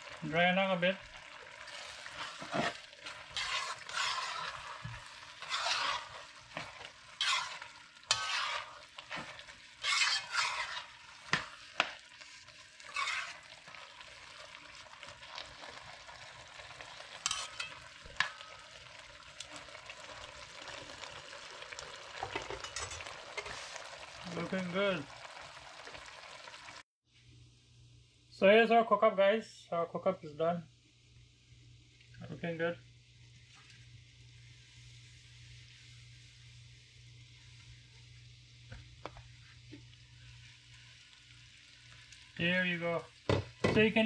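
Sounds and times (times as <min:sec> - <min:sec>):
soft simmer: 0:00.0 - 0:28.3, 0:30.6 - 0:44.0
metal spoon scraping a pot: 0:02.0 - 0:11.9, 0:12.8 - 0:13.5, 0:17.2 - 0:18.4, 0:22.4 - 0:23.8.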